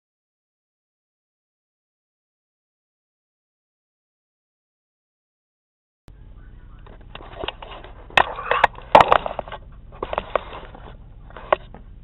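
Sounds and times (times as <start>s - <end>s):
low steady hum: 6.1s - 12.0s
handling noise rustling and knocking: 6.8s - 12.0s.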